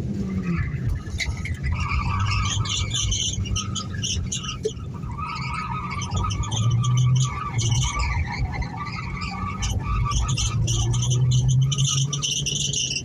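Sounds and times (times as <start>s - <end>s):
car engine: 0.0s - 13.0s
car tyres squealing: 0.0s - 13.0s.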